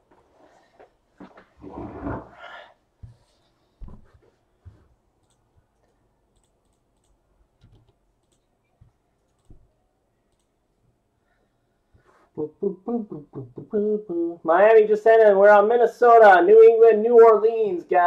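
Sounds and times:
keyboard and mouse clicks: 5.2 - 9.7.

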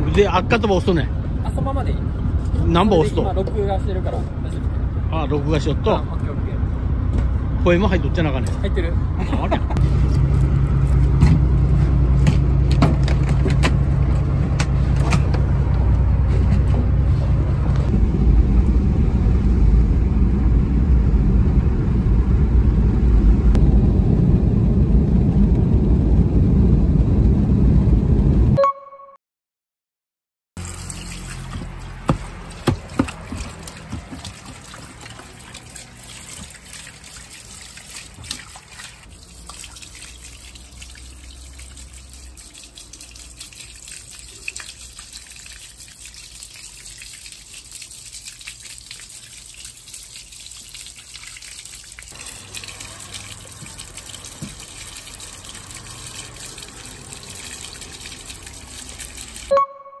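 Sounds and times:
short tone: 28.6 - 29.2, 59.5 - 60.0
water running and trickling: 30.6 - 59.5
sharp knocks: 32.1 - 34.3.

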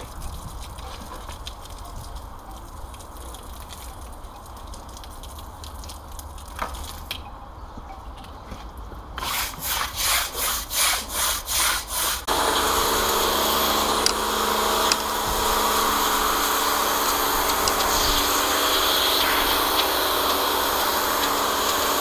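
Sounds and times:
pressure washer spraying: 9.2 - 22.0
wire brush scrubbing wet paving: 9.2 - 22.0.

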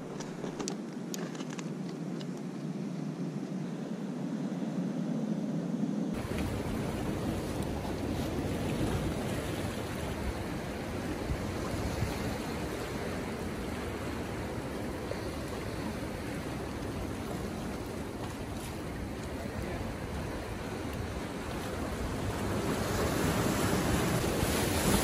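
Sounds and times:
ocean surf washing over rocks: 6.1 - 25.0.

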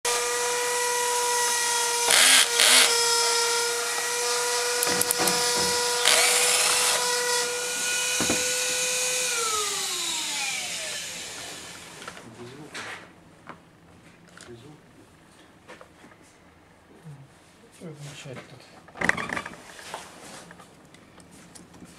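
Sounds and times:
cordless drill running: 0.1 - 12.2
screw rasping against bit: 4.8 - 7.1.

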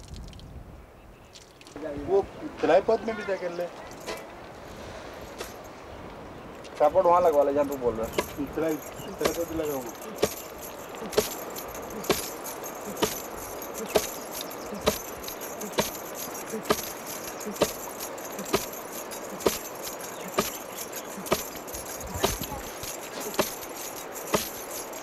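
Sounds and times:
wooden pestle pounding in mortar: 8.1 - 13.2, 13.8 - 14.2, 14.8 - 17.8, 19.4 - 20.6, 21.2 - 23.7, 24.3 - 24.6.

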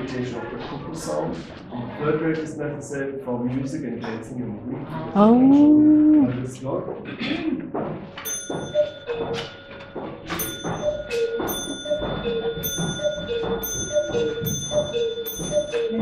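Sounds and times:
cuckoo clock calling: 8.2 - 16.0
sharp ringing clicks: 8.2 - 16.0.

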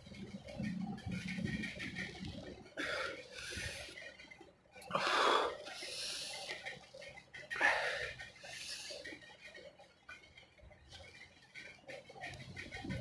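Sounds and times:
man breathing hard: 4.8 - 6.8.

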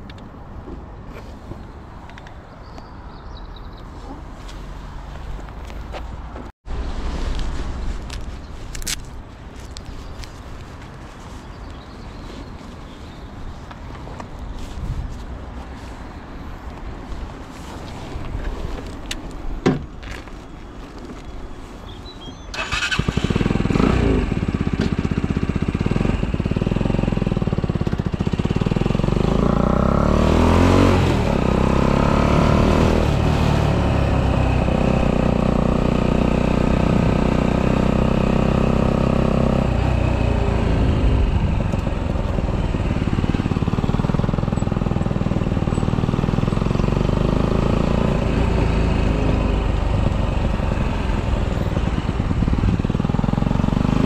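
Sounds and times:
motorcycle engine accelerating: 22.6 - 54.0.

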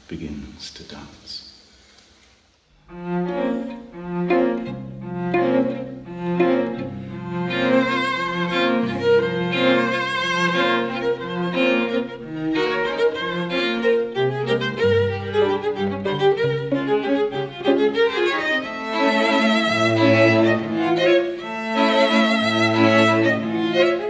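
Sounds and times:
cello and string quartet dance tune: 2.8 - 24.0.

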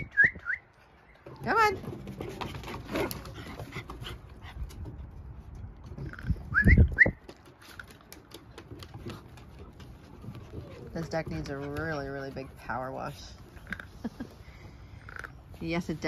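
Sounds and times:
paws clicking on wooden deck: 0.9 - 6.5, 7.1 - 13.7.

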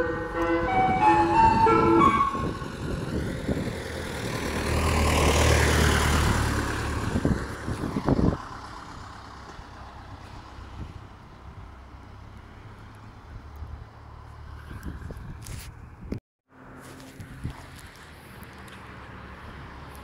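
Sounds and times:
ice cream van chime tune: 0.0 - 2.7
van driving past: 0.0 - 14.8.

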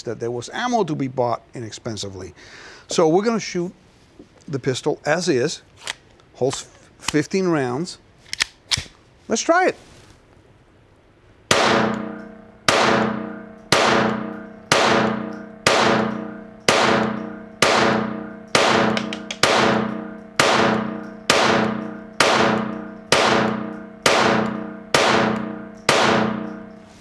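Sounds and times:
pistol shots with reverberation: 11.5 - 26.8.

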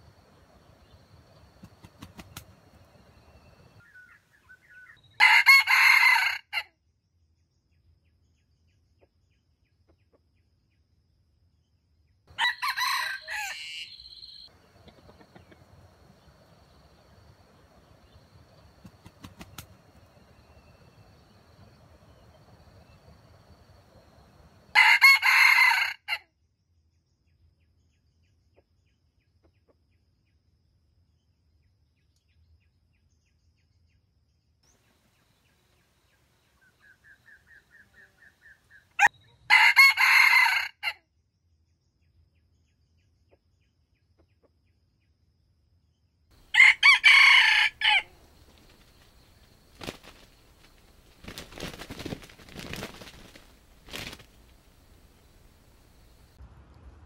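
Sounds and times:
rooster crowing: 5.2 - 6.6, 12.3 - 16.8, 20.0 - 26.2, 39.0 - 41.0, 46.4 - 50.2.

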